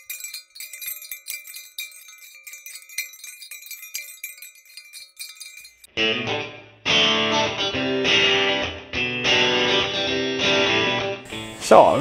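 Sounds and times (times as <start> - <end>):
small bells jingling: 0.0 - 5.9.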